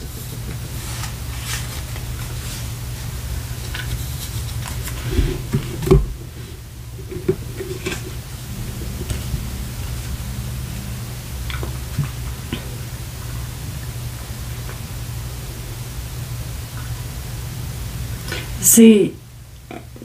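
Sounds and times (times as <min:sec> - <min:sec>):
low hum and hiss: 0:00.0 - 0:20.0.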